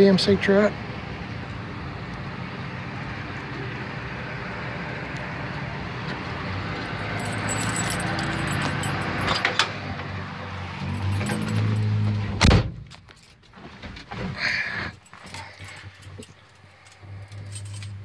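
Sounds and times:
outdoor traffic noise: 0.0s - 18.0s
keys jingling: 6.9s - 9.6s, 10.7s - 12.2s, 13.0s - 13.5s, 14.8s - 18.0s.

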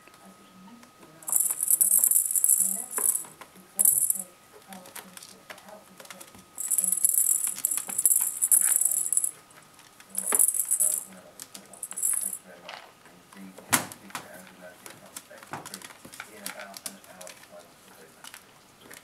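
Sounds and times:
rattle toy shaken: 1.3s - 4.2s, 6.6s - 9.4s, 10.1s - 11.1s, 11.8s - 12.4s.

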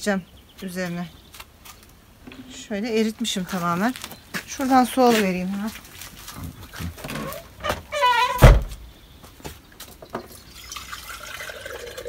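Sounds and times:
heavy thud: 8.4s - 8.8s
water running into container: 10.5s - 12.0s.

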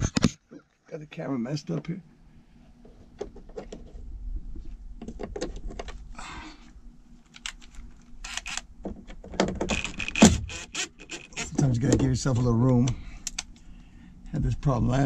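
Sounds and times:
drill handling clicks and rattles: 7.3s - 11.6s.

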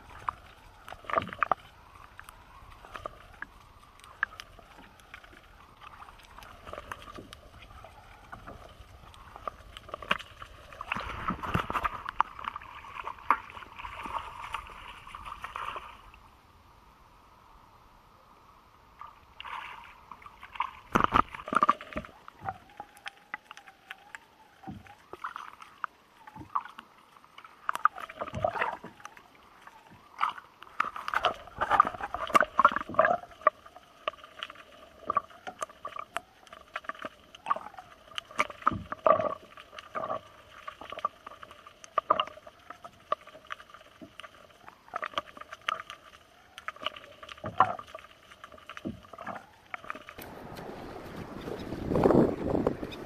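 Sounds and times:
water sloshing around kayak: 0.0s - 16.5s, 18.8s - 53.0s
steady hiss with low rumble: 0.0s - 24.6s, 28.9s - 53.0s
knocks and clicks against hull: 2.9s - 13.6s, 20.8s - 23.6s, 35.0s - 40.2s, 48.7s - 53.0s.

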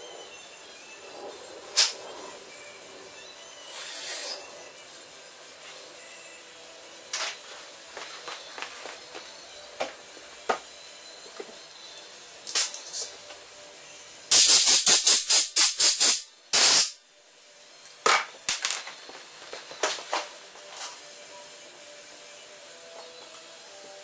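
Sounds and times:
pressurized jet hissing blasts: 3.6s - 4.5s, 14.3s - 17.0s.

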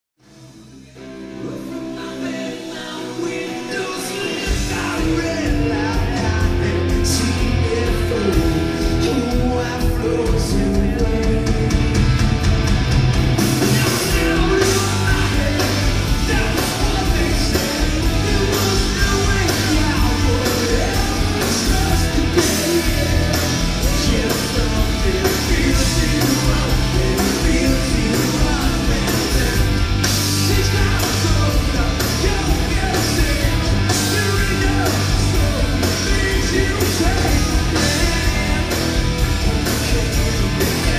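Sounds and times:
rock band playing live: 0.2s - 40.9s
cymbals and drums: 4.3s - 40.9s.

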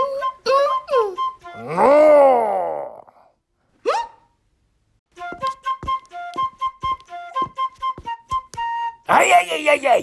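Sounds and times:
flute playing quick tune: 5.2s - 9.0s
sharp taps: 5.3s - 8.7s.

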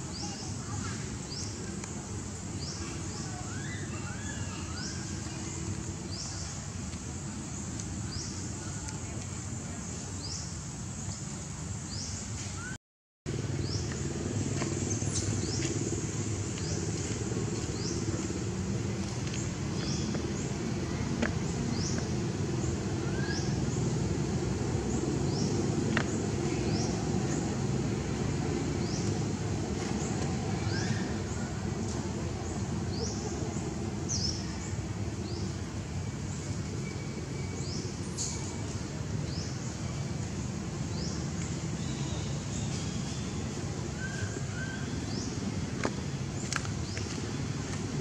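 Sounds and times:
steady low rumble: 13.3s - 48.0s.

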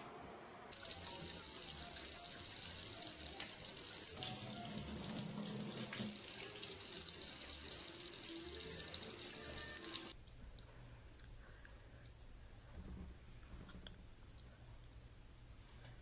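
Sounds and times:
running water: 0.7s - 10.2s.

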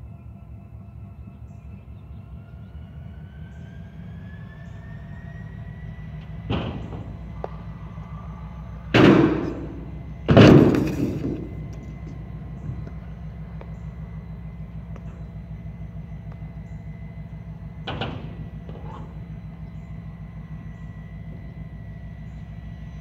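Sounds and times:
scooter crashing on metal ramp: 9.0s - 11.6s
scooter wheels rolling on concrete: 10.3s - 12.2s.

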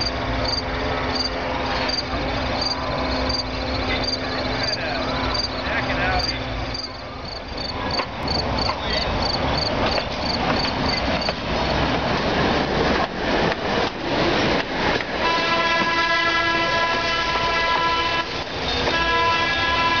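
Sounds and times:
night insects chirping: 0.0s - 11.9s
streetcar rolling past on rails: 0.0s - 20.0s
wheels clicking over rail joints: 6.2s - 16.0s
streetcar horn chord: 15.2s - 20.0s.

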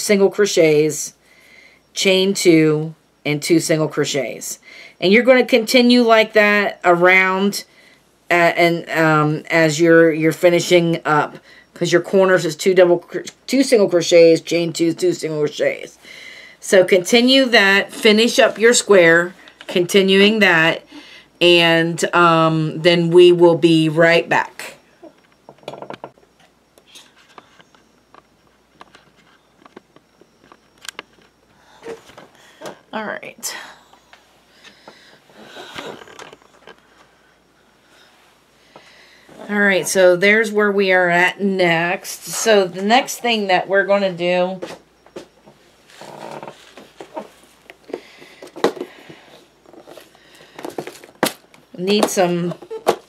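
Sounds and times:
rustling of small items: 45.8s - 51.6s.

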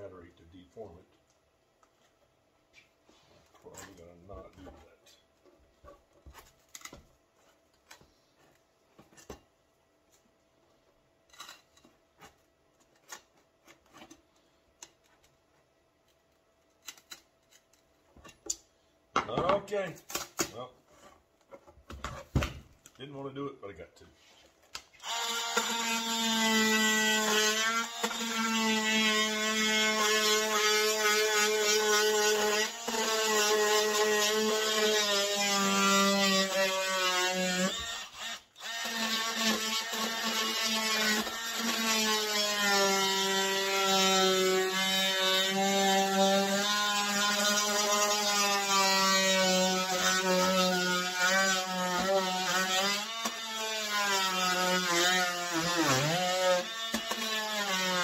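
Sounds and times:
oscillating multi-tool buzzing whine: 25.0s - 58.0s.

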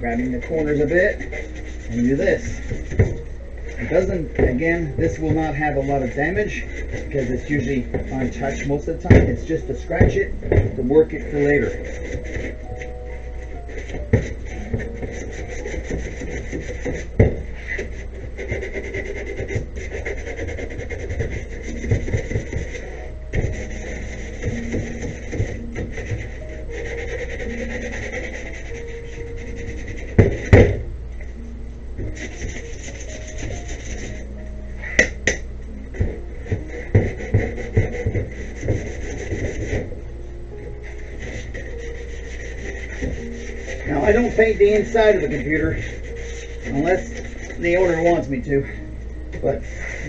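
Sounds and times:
sandpaper rubbing on plastic: 0.0s - 30.8s, 32.0s - 34.4s, 36.0s - 40.0s, 40.8s - 48.2s, 49.5s - 50.0s
knock: 9.1s - 9.4s, 30.2s - 30.8s.

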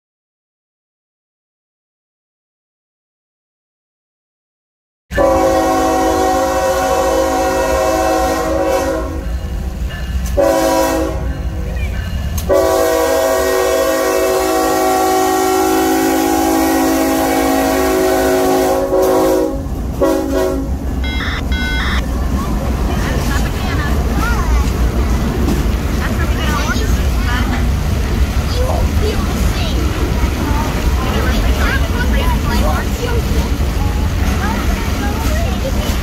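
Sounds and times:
locomotive air horn blasts: 5.1s - 9.4s, 10.4s - 11.4s, 12.5s - 21.2s
engine and wheel rumble: 19.0s - 36.0s.

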